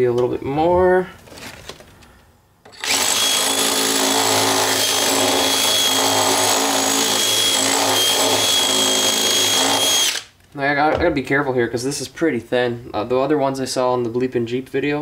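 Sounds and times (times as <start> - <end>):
cordless drill running: 2.7 - 10.3.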